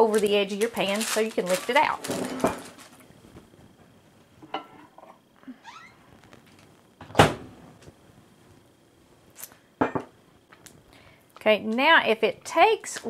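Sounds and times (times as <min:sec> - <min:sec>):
microwave door thumping shut: 0:07.1 - 0:07.5.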